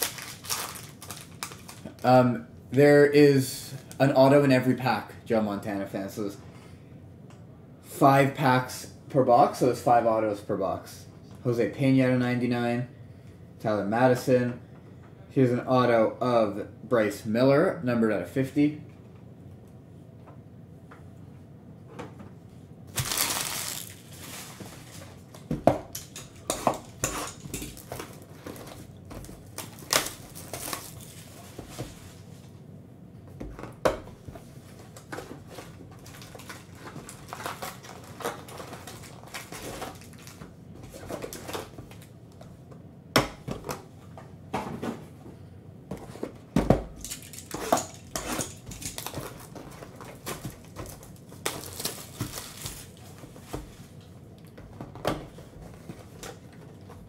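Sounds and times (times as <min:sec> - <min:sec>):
cards rustling: 0:00.0 - 0:02.0, 0:23.0 - 0:25.2.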